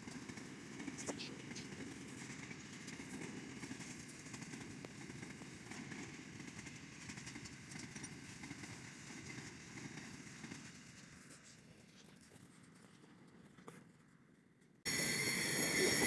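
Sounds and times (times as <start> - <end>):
train wheels rumbling on track: 0.0 - 11.9.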